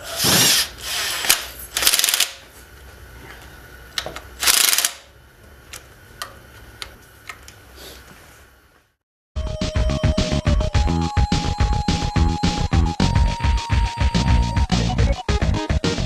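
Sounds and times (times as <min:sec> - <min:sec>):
ratchet clicking: 0:01.1 - 0:02.4, 0:04.4 - 0:05.1.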